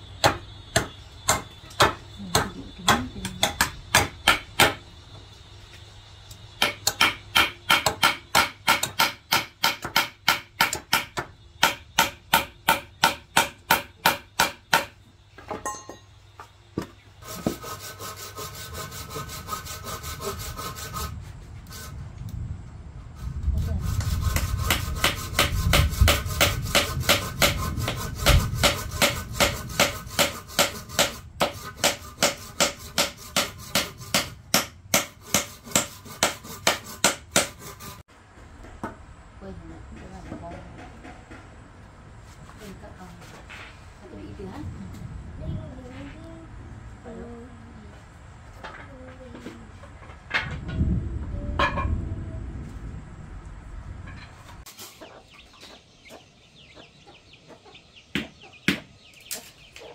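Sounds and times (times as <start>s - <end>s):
hand saw cutting wood: 17.2s - 22.0s, 23.5s - 38.1s.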